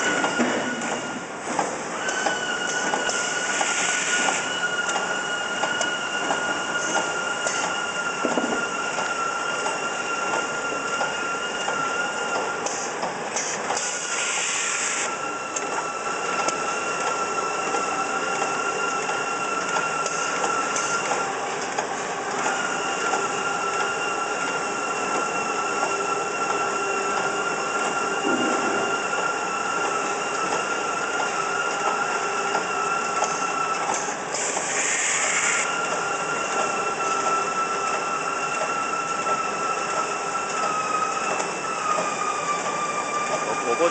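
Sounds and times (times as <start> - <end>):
loud hiss: 13.9 - 15.1, 34.4 - 35.7
high machine whine: 22.5 - 42.4.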